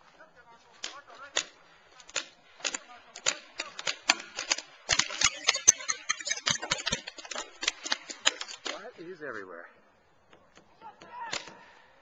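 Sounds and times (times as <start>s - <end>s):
paintball markers firing: 0.8s - 8.9s, 10.3s - 11.8s.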